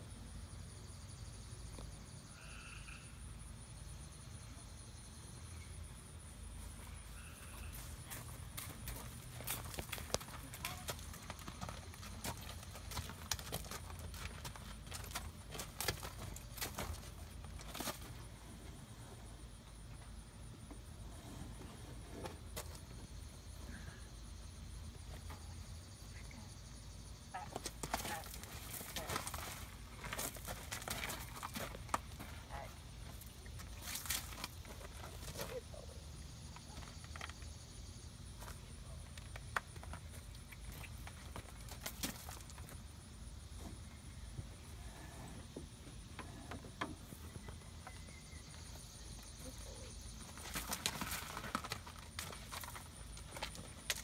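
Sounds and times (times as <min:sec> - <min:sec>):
hoof steps on gravel: 0:06.8 - 0:18.7, 0:27.4 - 0:35.6, 0:39.2 - 0:42.9, 0:47.1 - 0:54.0.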